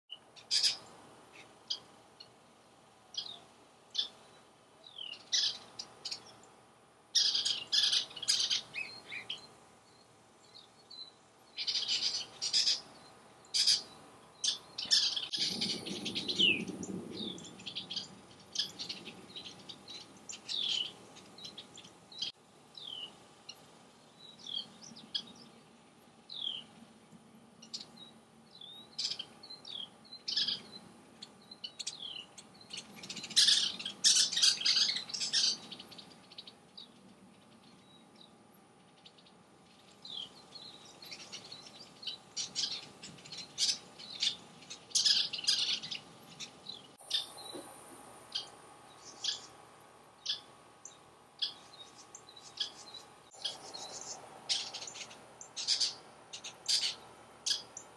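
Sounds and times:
birds chattering rapidly: 0:00.2 - 0:02.4, 0:07.2 - 0:25.6, 0:27.6 - 0:38.4, 0:39.8 - 0:57.9
birds chirping in alarm: 0:07.2 - 0:23.6, 0:27.6 - 0:37.0, 0:40.0 - 0:47.7, 0:48.3 - 0:57.9.

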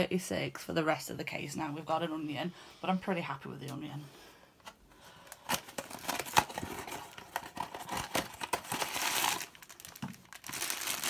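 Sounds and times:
cardboard rustling and tearing: 0:05.5 - 0:11.0.

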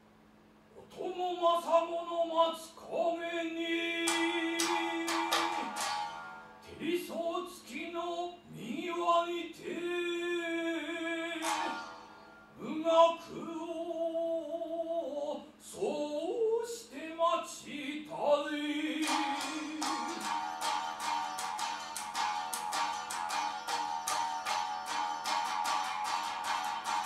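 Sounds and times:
plucked lute strikes: 0:04.0 - 0:06.7, 0:11.3 - 0:12.4, 0:18.9 - 0:27.0.

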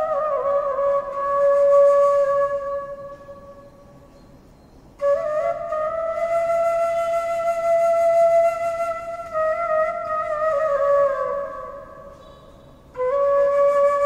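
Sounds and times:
bamboo flute playing: 0:00.0 - 0:04.1, 0:05.0 - 0:14.0.

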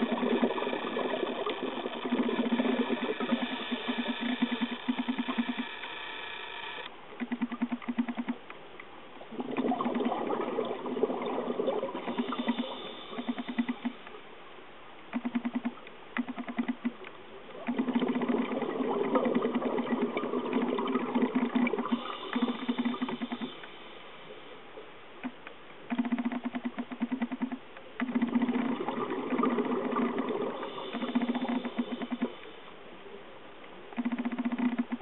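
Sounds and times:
scuba regulator bubbles rattling: 0:00.0 - 0:05.6, 0:09.3 - 0:14.0, 0:17.6 - 0:23.6, 0:25.9 - 0:32.4.

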